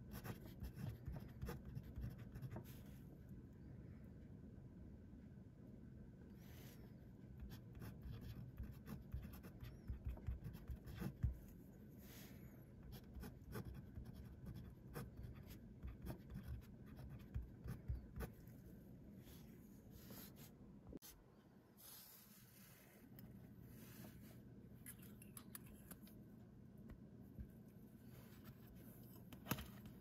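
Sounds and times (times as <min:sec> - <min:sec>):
pen nib scratching on paper: 0:00.1 - 0:02.6, 0:07.4 - 0:11.4.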